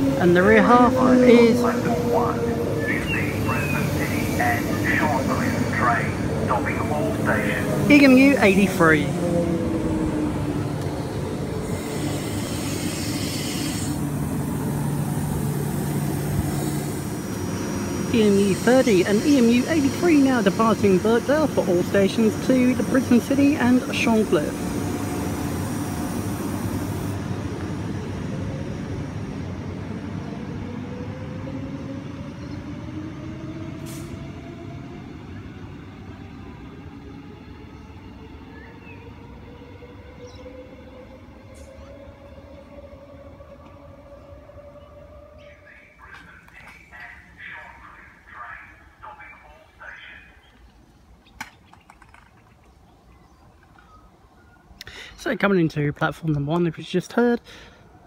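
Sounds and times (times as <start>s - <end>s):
electric train hum: 0.0s - 54.8s
train rolling noise: 0.0s - 58.0s
hiss: 11.6s - 20.1s.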